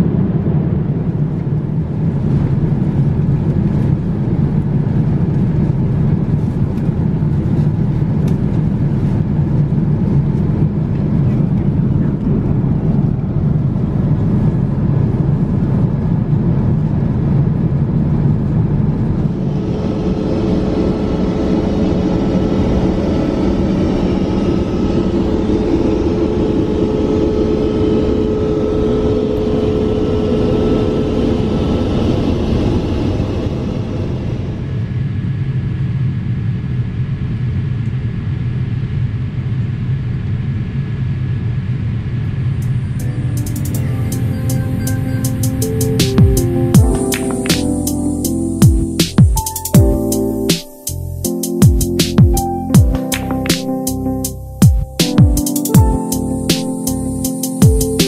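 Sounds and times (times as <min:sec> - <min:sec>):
aircraft cabin engine rumble: 0:00.0 - 0:58.0
steady hum tone: 0:17.6 - 0:37.5, 0:39.5 - 0:58.0.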